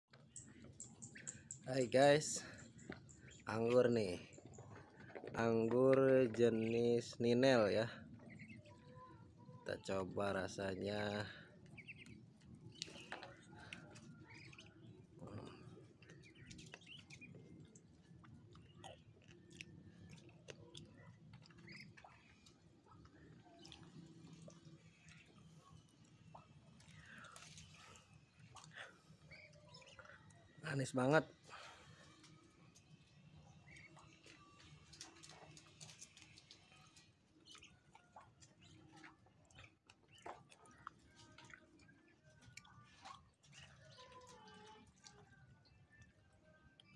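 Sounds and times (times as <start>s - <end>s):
small wet clicks: 0.1s - 7.2s, 11.2s - 30.6s, 31.3s - 46.9s
birds chirping faintly: 0.1s - 46.9s
chewing grape: 11.7s - 30.4s, 33.6s - 45.2s.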